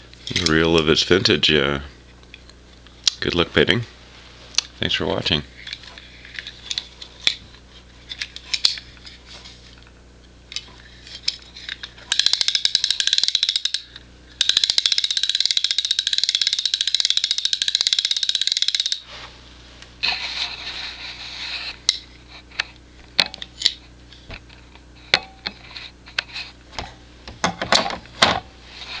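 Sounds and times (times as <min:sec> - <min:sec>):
reel handling clicks and knocks: 0:10.5 - 0:19.0
fly reel clicking buzz: 0:12.1 - 0:19.1.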